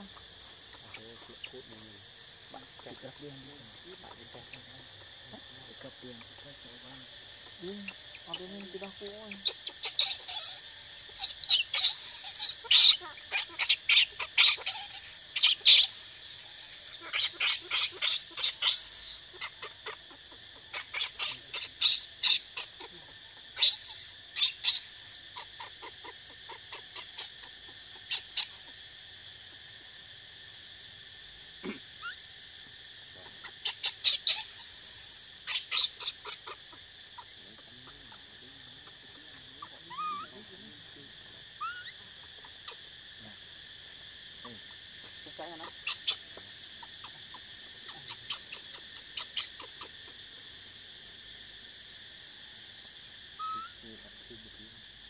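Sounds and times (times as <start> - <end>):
infant monkey squealing: 7.7 - 28.7, 31.6 - 32.2, 33.4 - 36.6, 38.8 - 40.4, 41.6 - 42.8, 45.6 - 46.2, 47.9 - 50.0, 53.4 - 53.8.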